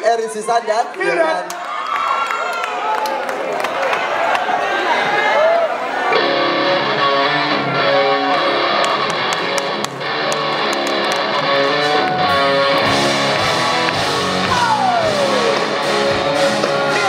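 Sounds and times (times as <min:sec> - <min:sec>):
live rock band music: 0:06.1 - 0:17.0.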